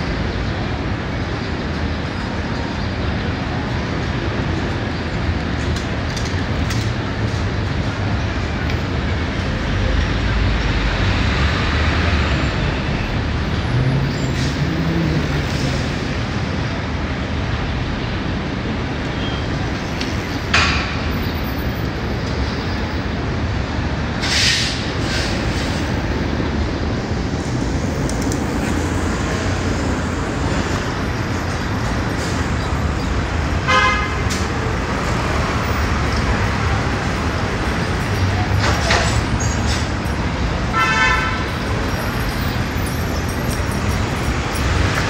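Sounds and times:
city street traffic: 0.0s - 45.0s.

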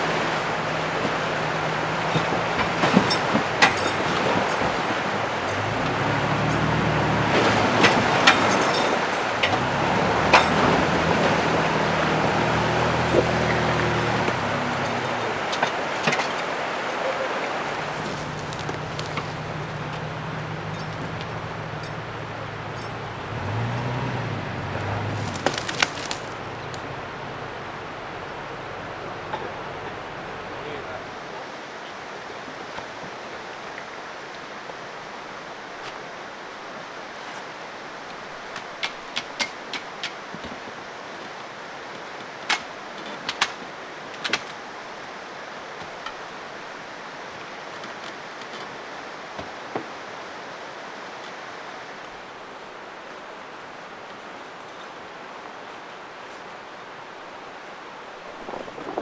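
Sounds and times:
pickup truck engine running: 0.0s - 15.9s, 17.6s - 31.2s.

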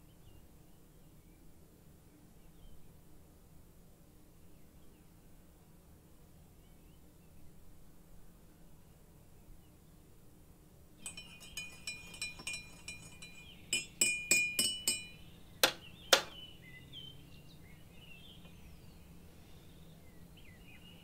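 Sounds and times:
teaspoon clinking in a ceramic mug: 11.0s - 15.3s.

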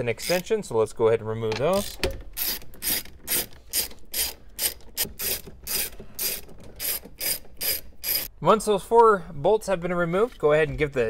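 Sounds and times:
socket ratchet clicking: 1.6s - 8.3s.

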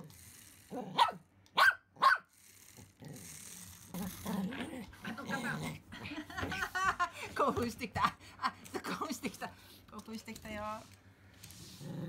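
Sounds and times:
small dog barking: 0.9s - 2.3s
dog growling low: 2.8s - 6.1s, 11.5s - 12.0s.

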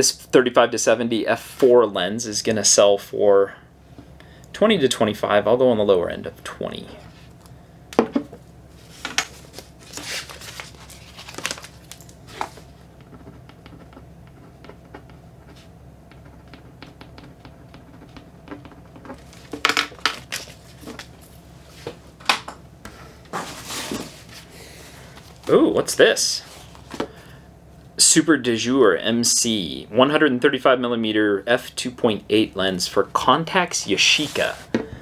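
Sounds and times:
rustling and crinkling in a box: 8.8s - 12.8s
pen scratching on paper: 13.1s - 19.2s.

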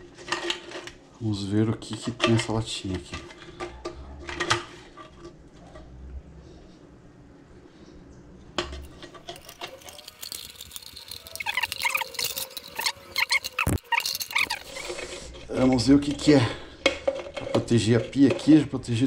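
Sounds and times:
can opener clicking and scraping: 8.8s - 15.2s
high squeaking: 8.9s - 15.3s.

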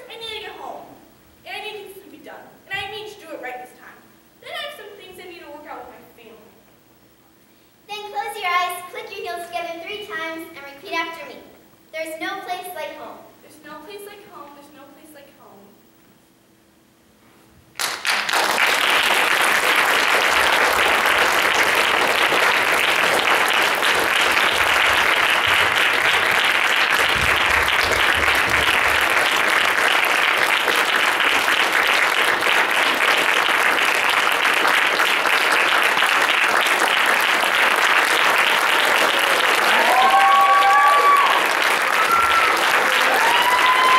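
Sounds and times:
audience applauding: 17.8s - 43.9s.

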